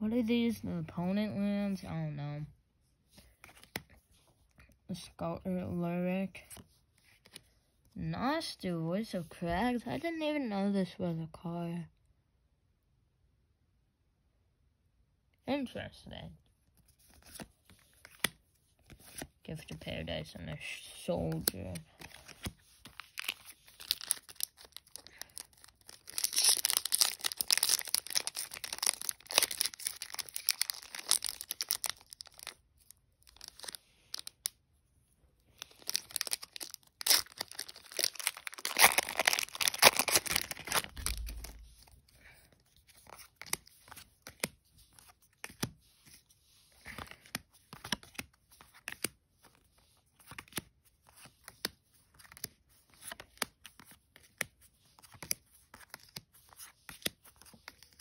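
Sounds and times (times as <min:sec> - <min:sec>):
papery rustling of cards: 0:03.0 - 0:04.8, 0:06.3 - 0:07.6, 0:16.6 - 0:58.0.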